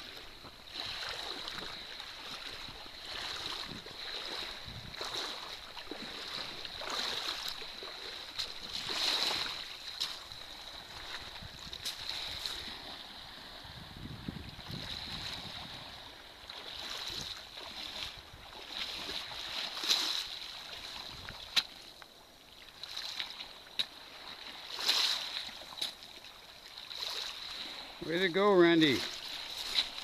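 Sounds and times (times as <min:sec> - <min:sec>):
boots splashing through water: 0:00.0 - 0:13.0, 0:14.6 - 0:30.0.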